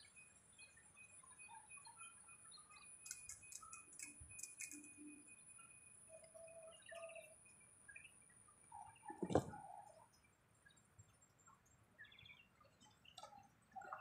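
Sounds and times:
faint high whine: 0.0 - 10.1.

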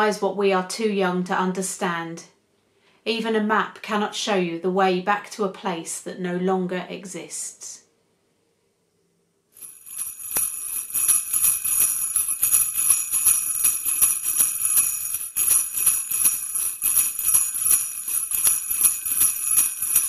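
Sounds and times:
sleigh bells jingling: 9.6 - 20.0.

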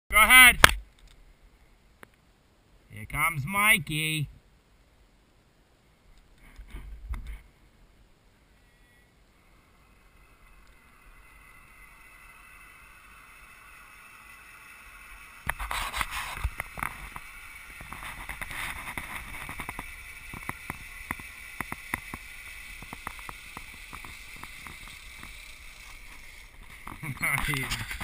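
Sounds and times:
zip line pulley whirring: 8.6 - 28.0
sharp clicks and rattles: 11.9 - 28.0.

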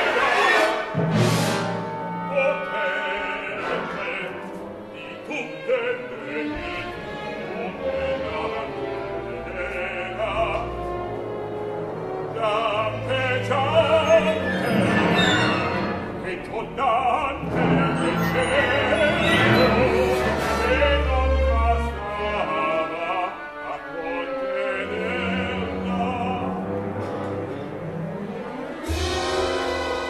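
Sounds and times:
opera singing voice: 2.2 - 27.0
orchestra playing slow chords: 25.1 - 30.0.

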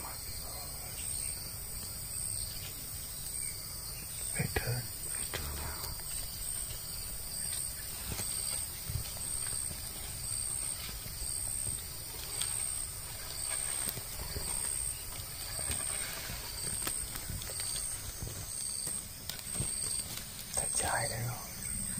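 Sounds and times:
insect chirping: 0.0 - 21.9
faint ticks: 4.6 - 6.8.

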